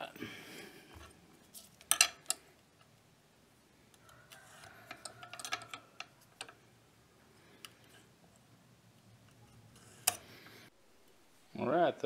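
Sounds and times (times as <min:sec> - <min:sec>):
steel scribe scratching steel: 0:09.4 - 0:10.3.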